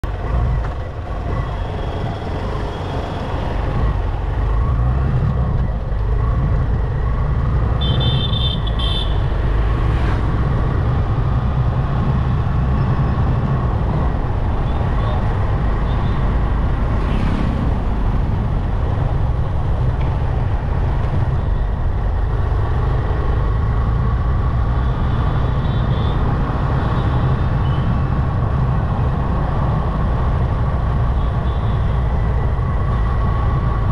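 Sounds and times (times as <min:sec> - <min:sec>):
motorcycle engine and wind rumble: 0:00.0 - 0:33.9
vehicle horns tooting: 0:07.8 - 0:09.3.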